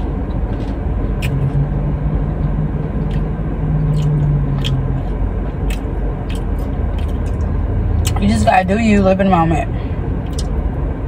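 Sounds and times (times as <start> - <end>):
car engine rumble inside cabin: 0.0 - 11.0
low hum: 0.0 - 11.0
chewing and eating clicks: 0.3 - 1.6, 2.4 - 8.2.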